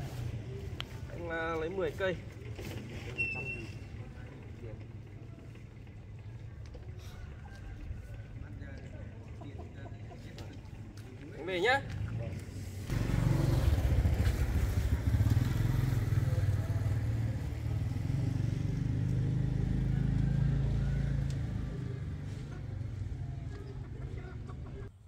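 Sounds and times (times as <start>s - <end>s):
motorbike engine running: 12.9s - 23.9s.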